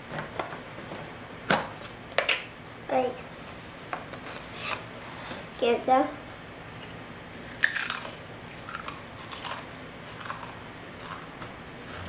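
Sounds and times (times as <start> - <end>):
crisp bitten with a crack: 7.6 - 12.0
crisp chewing crunches: 7.6 - 12.0.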